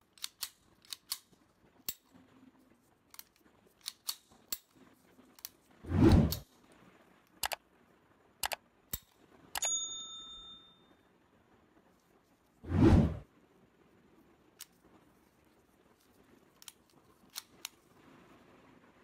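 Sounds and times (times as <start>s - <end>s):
pistol action clicking: 0.1s - 2.1s, 3.1s - 4.7s
bell ding: 9.6s - 11.0s
loud whoosh: 12.6s - 13.3s.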